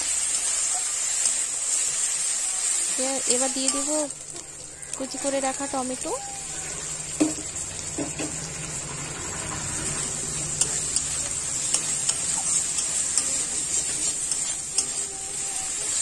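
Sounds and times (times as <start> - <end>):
masala sizzling in oil: 0.0 - 16.0
spatula clicking and scraping pan: 9.6 - 16.0.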